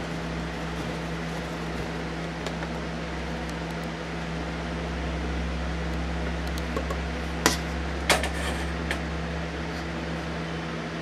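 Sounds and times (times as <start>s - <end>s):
electric motor hum: 0.0s - 11.0s.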